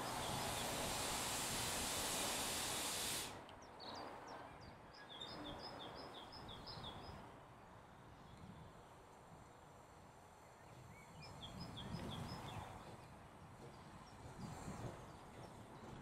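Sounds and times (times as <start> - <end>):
loud even hiss: 0.0 - 3.4.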